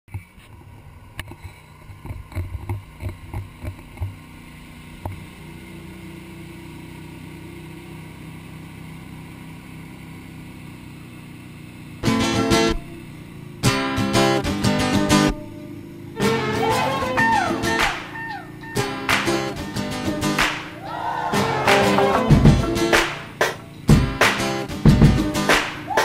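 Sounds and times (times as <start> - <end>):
boat engine running: 0.1 - 26.0
strummed guitar music: 12.0 - 26.0.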